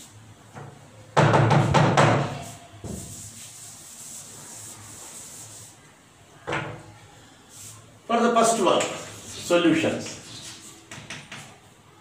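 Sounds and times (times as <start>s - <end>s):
duster rubbing on blackboard: 1.6s - 5.9s, 9.0s - 11.6s.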